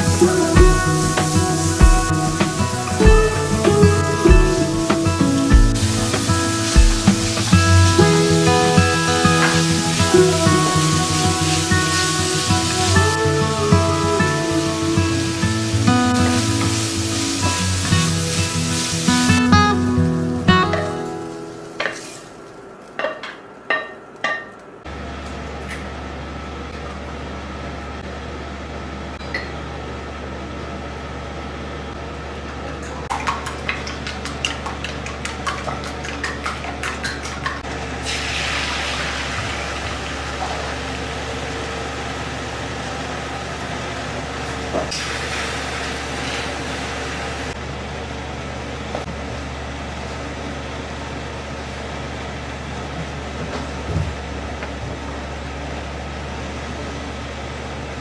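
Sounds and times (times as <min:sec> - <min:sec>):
eggs sizzling in pan: 0:00.0 - 0:19.5, 0:37.9 - 0:41.0.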